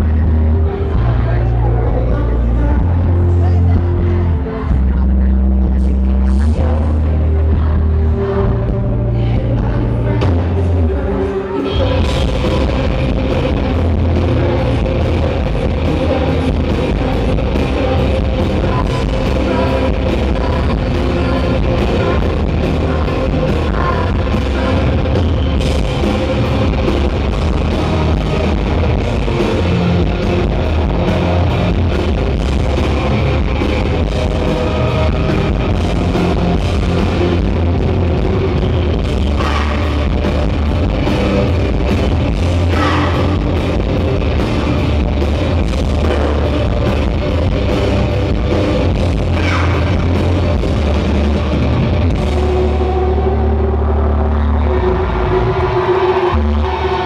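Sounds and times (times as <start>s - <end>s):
female lead vocal: 0.0s - 32.1s, 38.9s - 41.9s, 42.5s - 43.8s, 49.1s - 50.1s
live rock band playing: 11.6s - 53.8s.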